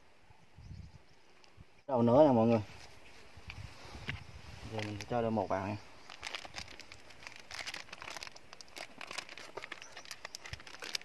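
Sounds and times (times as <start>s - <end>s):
plastic packet crinkling: 6.0s - 11.0s.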